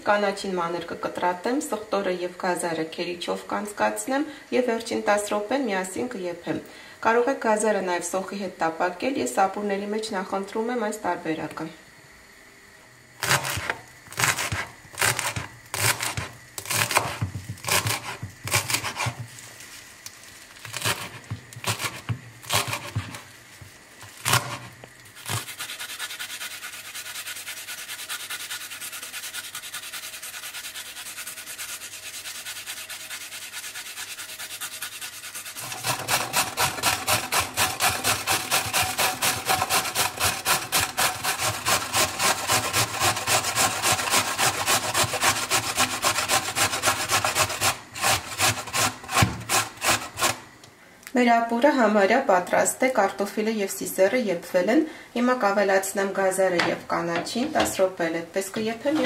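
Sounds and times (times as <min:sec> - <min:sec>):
carrot grated on box grater: 0:13.2 - 0:19.3, 0:20.6 - 0:23.3, 0:24.0 - 0:50.4
garlic grated on metal grater: 0:13.2 - 0:19.3, 0:20.6 - 0:23.3, 0:24.0 - 0:50.4, 0:58.8 - 0:59.0
knife chopping on wooden board: 0:13.2 - 0:19.3, 0:20.7 - 0:23.2, 0:24.2 - 0:25.5, 0:49.1 - 0:50.4.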